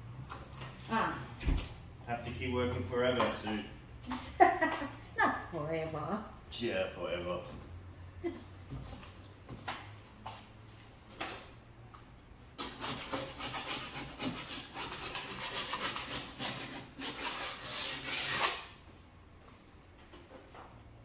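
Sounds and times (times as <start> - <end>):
hand saw rasping drywall: 12.6 - 18.8.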